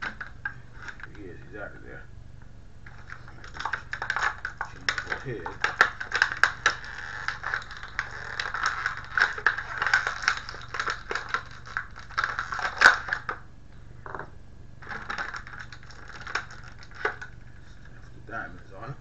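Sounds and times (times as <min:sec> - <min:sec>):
plastic bag crinkling: 0:02.8 - 0:13.4, 0:14.8 - 0:18.1.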